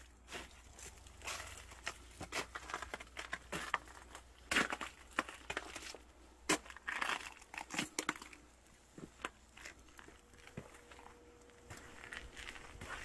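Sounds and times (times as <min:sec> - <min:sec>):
footsteps crunching on snow: 0:08.9 - 0:13.0.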